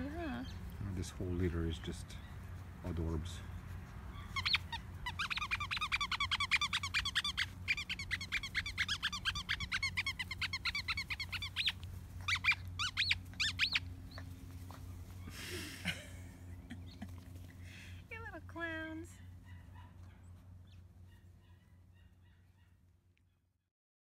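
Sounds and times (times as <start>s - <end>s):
squeaky dog toy squeaking: 4.1s - 13.8s.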